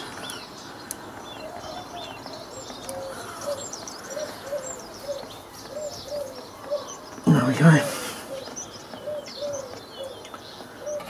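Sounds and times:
bird low arched notes: 0.0s - 11.0s.

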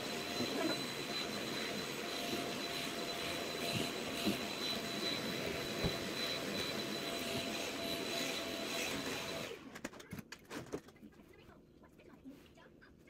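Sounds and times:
vacuum cleaner whining: 0.0s - 9.8s.

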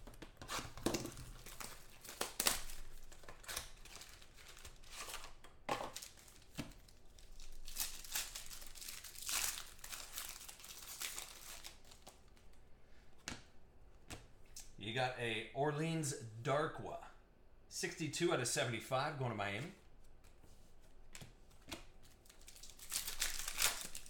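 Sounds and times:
wrappers crinkling and ripping: 0.0s - 12.6s, 21.7s - 24.0s.

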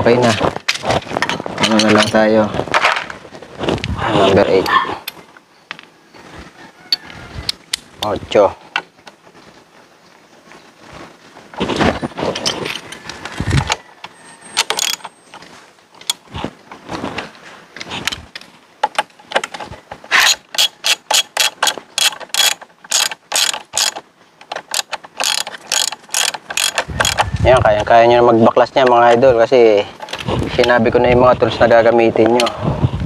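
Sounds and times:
tools scraping: 0.2s - 5.2s, 11.6s - 27.9s
ratchet wrench clicking: 20.2s - 24.0s, 24.7s - 27.3s.

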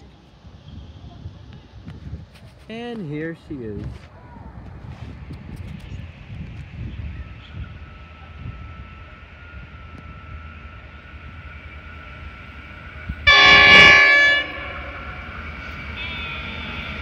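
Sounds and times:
train rumble: 0.0s - 17.0s
locomotive horn chord: 13.3s - 16.8s.

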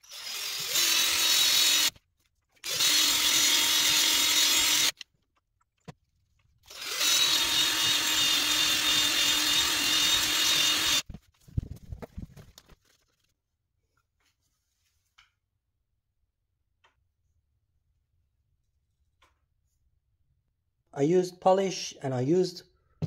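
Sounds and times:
cordless drill motor whine: 0.0s - 1.9s, 2.6s - 5.0s, 6.7s - 11.0s.

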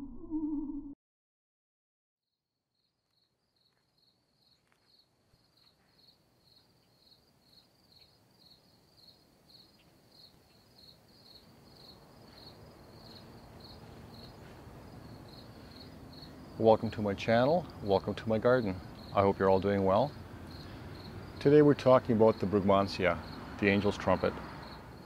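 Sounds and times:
crickets chirping: 2.8s - 25.0s
low outdoor rumble: 12.5s - 25.0s.

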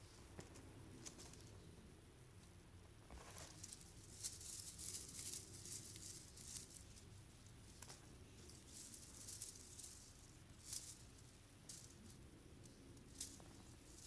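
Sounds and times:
foil ribbons rustling: 3.1s - 12.2s.

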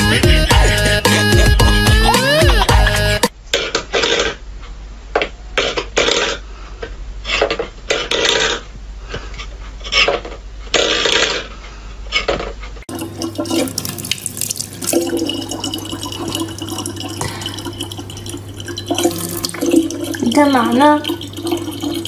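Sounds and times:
tap water running into plastic bottle: 12.9s - 22.0s.

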